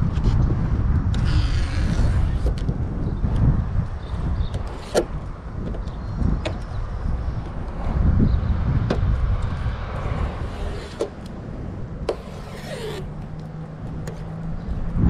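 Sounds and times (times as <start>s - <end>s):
outdoor rumble: 0.0s - 15.0s
tape strip rasping free: 1.2s - 2.7s, 12.1s - 13.5s.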